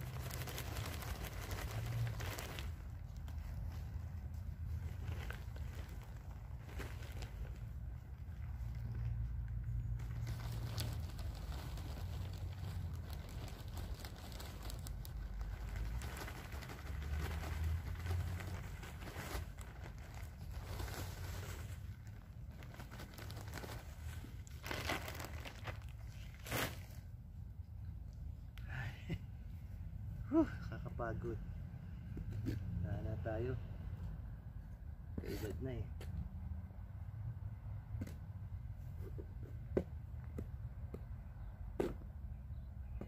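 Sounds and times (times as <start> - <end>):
plastic bag crinkling: 0.0 - 27.0
soil pouring: 17.0 - 27.0.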